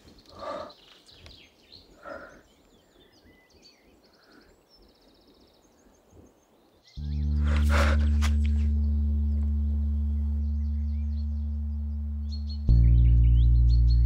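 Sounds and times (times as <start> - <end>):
small birds chirping: 0.0 - 14.0
deep sustained drone tone: 7.0 - 14.0.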